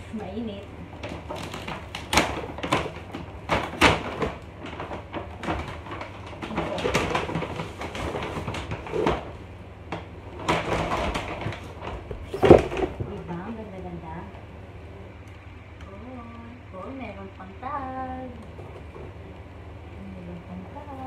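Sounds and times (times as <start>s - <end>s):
paper bag crinkling: 0.9s - 9.5s, 10.1s - 13.1s
cardboard box knocks: 12.2s - 13.1s.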